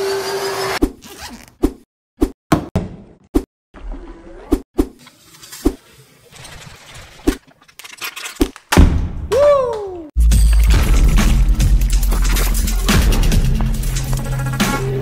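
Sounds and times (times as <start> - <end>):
electronic music with heavy bass: 10.2 - 15.0.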